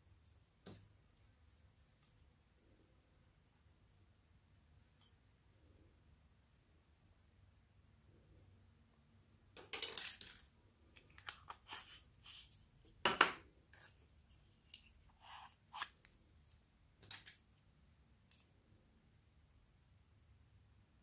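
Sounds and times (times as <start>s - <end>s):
plastic paint pots handled: 9.5s - 16.2s, 17.0s - 17.6s.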